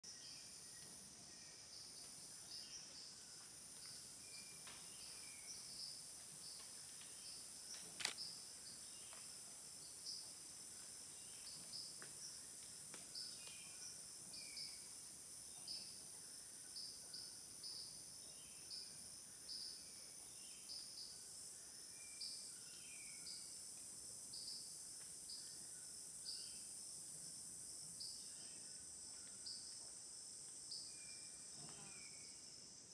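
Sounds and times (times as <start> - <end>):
insect buzzing and chirps: 0.0 - 32.9
sharp click: 7.8 - 8.2.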